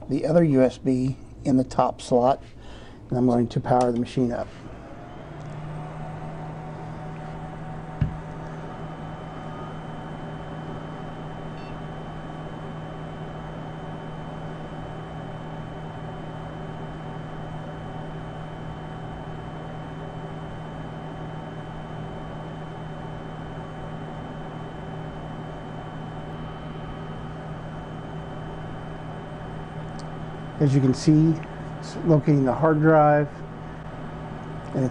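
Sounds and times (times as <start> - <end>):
electrical hum: 0.0 - 34.9
faint steady tones: 4.3 - 17.0.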